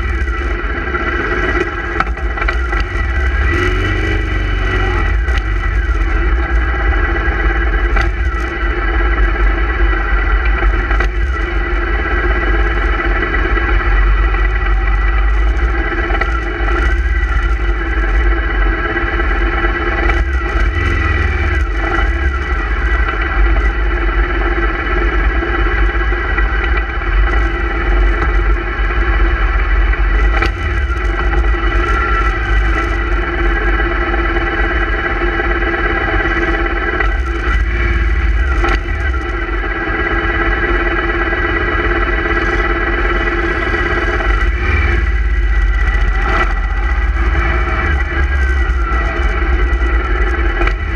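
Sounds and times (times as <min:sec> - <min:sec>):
motorcycle engines rumbling: 0:00.0 - 0:50.9.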